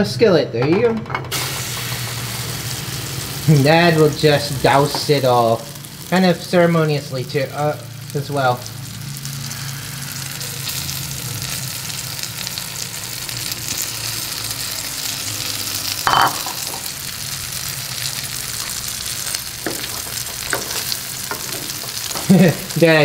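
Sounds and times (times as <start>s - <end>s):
oil sizzling in a skillet: 1.3s - 23.0s
spatula taps: 19.6s - 22.4s.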